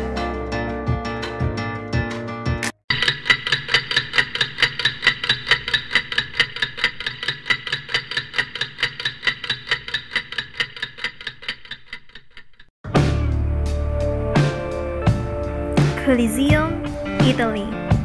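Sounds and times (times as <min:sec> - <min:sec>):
film projector ticking: 0:02.9 - 0:12.7.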